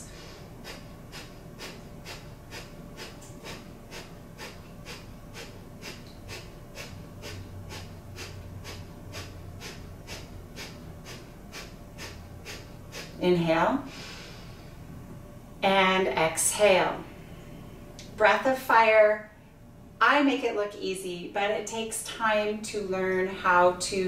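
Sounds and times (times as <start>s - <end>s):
woman breathing rapidly through nose: 0.0s - 13.2s, 13.8s - 14.8s.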